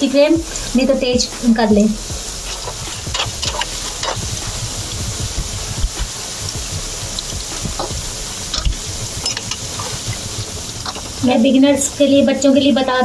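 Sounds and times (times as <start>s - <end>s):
fritters deep-frying in oil: 0.0s - 13.0s.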